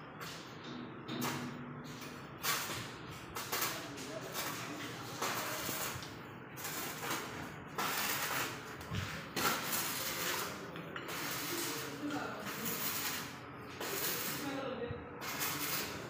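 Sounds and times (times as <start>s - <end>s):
arc welding hiss: 2.4s - 6.0s, 6.6s - 14.6s, 15.2s - 16.0s.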